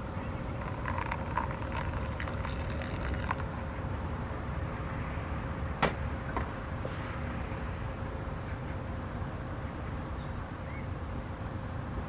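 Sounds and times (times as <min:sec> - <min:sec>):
hot water pouring from kettle: 0:00.6 - 0:03.5.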